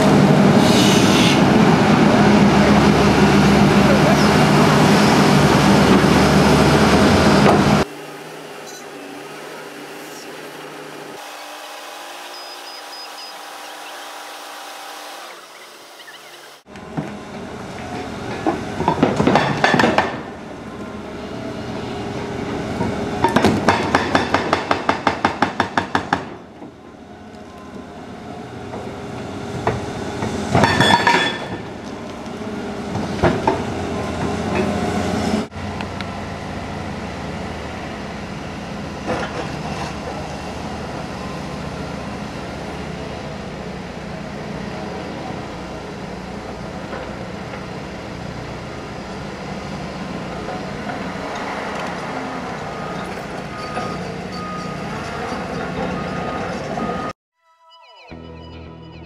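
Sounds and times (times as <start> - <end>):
engine running: 26.8 - 53.8.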